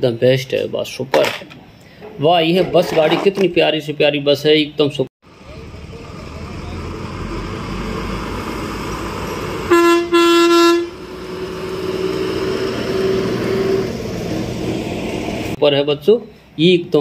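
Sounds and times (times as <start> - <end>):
bus driving past: 5.2 - 15.6
bus horn blasts: 9.6 - 13.9.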